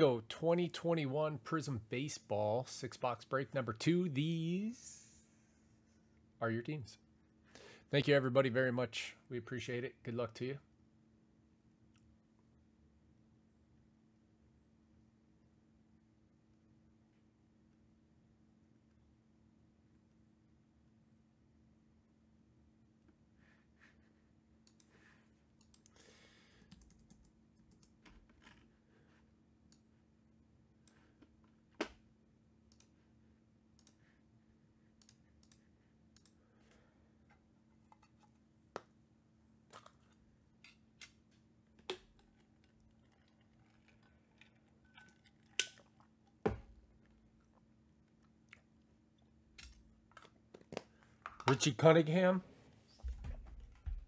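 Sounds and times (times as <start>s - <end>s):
faint low hum: 0.0s - 54.0s.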